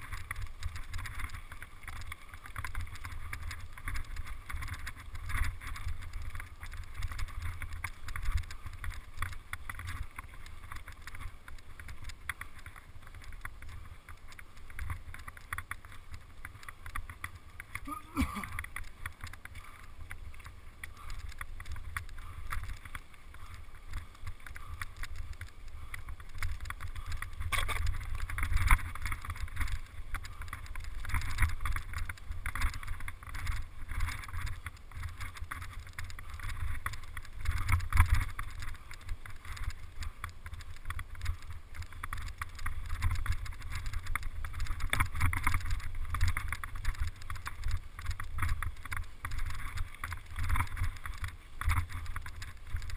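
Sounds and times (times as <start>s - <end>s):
bike clattering and rattling: 0.0s - 52.9s.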